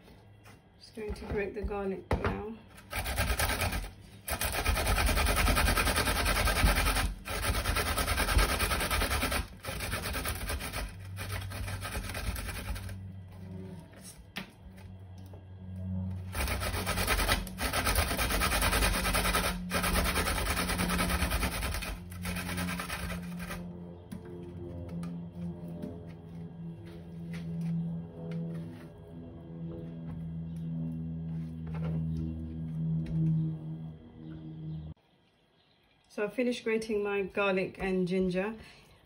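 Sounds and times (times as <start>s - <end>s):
garlic scraping on grater: 2.8s - 13.1s, 16.3s - 23.6s.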